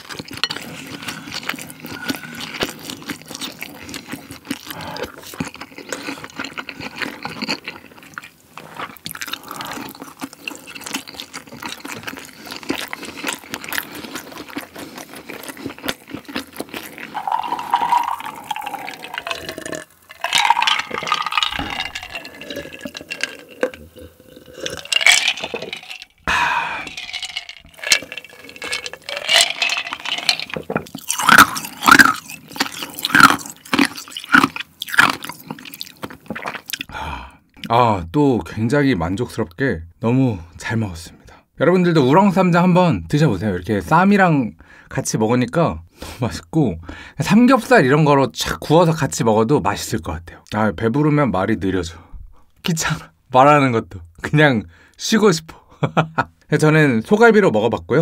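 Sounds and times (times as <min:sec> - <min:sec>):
person slurping stew: 0:00.0 - 0:06.8, 0:08.6 - 0:37.4
wet chewing: 0:00.0 - 0:36.9.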